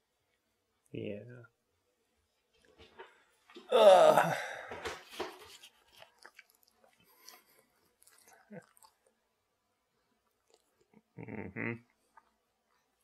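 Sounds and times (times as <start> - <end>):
faint clicks and smacking: 4.7 - 9.2.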